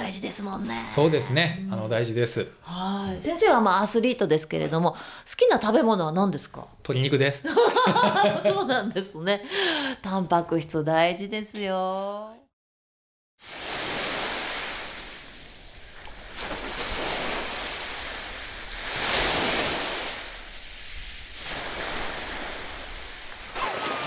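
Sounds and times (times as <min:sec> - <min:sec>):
sea surf washing onto beach: 0:13.4 - 0:24.0
feet splashing through shallow water: 0:13.6 - 0:24.0.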